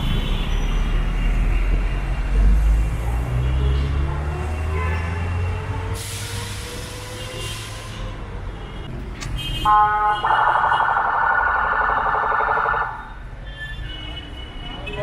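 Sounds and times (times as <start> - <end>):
air brakes hissing: 5.9 - 8.2
vehicle horn blasting: 9.4 - 10.4.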